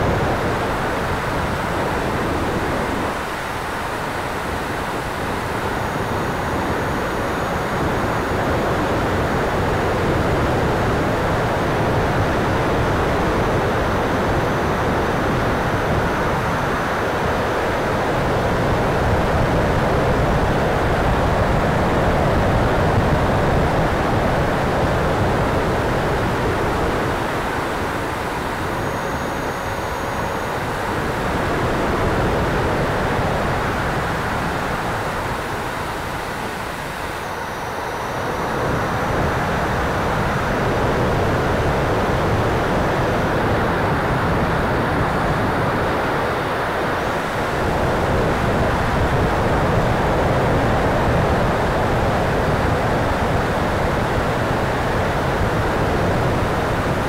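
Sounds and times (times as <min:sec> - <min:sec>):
electric ducted fan jet noise: 0:00.0 - 0:57.0.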